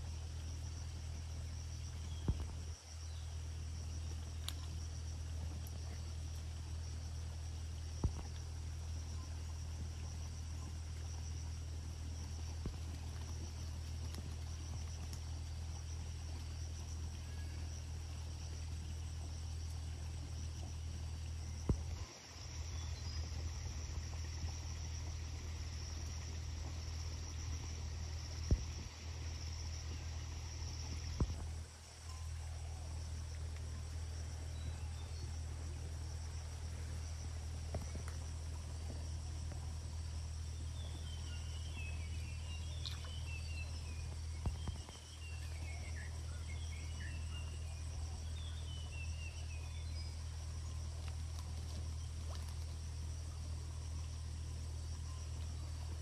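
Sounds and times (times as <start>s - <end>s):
crickets chirping: 0.0s - 56.0s
low hum: 0.0s - 56.0s
small chirps: 40.7s - 52.7s.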